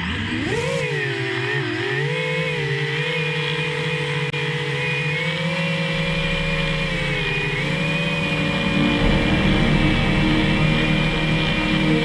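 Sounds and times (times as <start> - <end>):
drone motors whining: 0.0 - 12.0
low rumble: 5.9 - 12.0.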